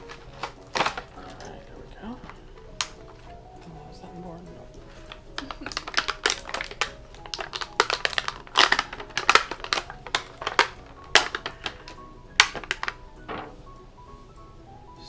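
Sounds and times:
toy packaging crinkling: 0.0s - 1.7s, 4.8s - 13.5s.

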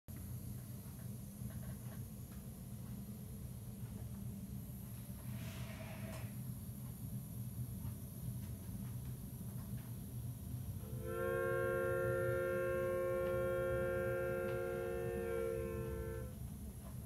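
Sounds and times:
steam locomotive chime whistle: 10.8s - 16.4s
model train rumbling: 10.8s - 17.0s.

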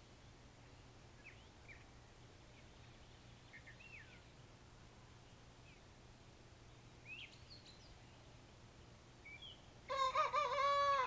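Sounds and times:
cockerel crowing: 9.9s - 11.0s.

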